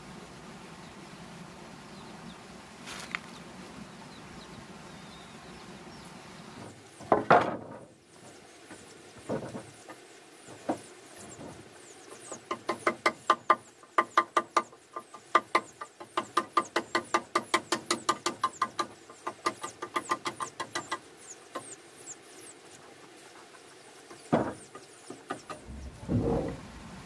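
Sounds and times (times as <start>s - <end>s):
wooden knock: 7.0s - 7.9s, 24.3s - 24.7s.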